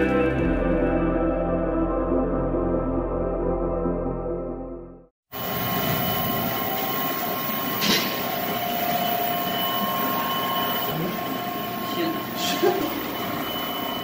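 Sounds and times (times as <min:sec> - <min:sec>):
disperser machine whining: 0:05.3 - 0:14.0.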